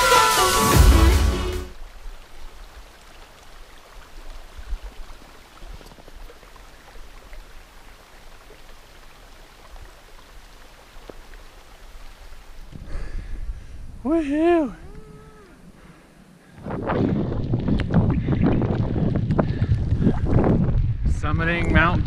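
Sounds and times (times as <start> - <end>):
water drips and gurgles: 1.7 - 12.9, 17.2 - 21.0
creek trickling: 1.7 - 20.6.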